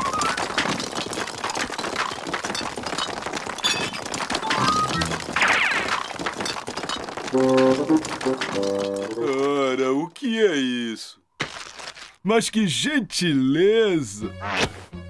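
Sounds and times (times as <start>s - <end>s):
ice cubes clattering: 0.0s - 9.8s, 11.4s - 12.2s
cartoon background music: 4.5s - 5.6s, 7.3s - 9.5s, 14.0s - 15.0s.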